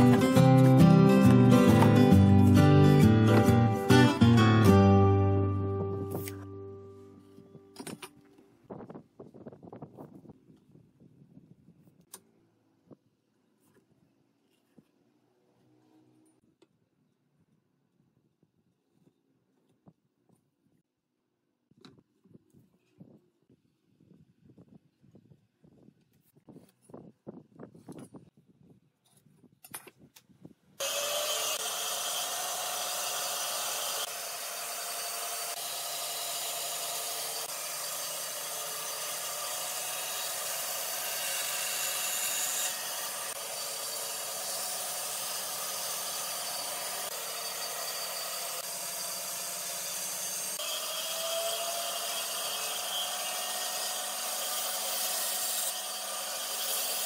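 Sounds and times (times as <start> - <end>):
bandsaw cutting wood: 0.0 - 4.4, 30.8 - 57.0
bandsaw motor hum: 30.8 - 57.0.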